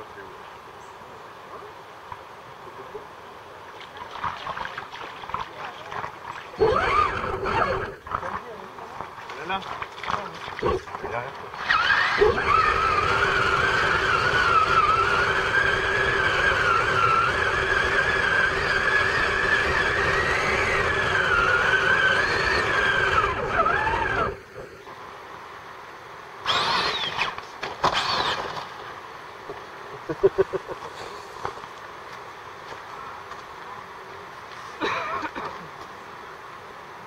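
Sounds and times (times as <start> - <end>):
rc truck motor whining: 6.6 - 8.0, 11.6 - 24.5, 26.4 - 28.6.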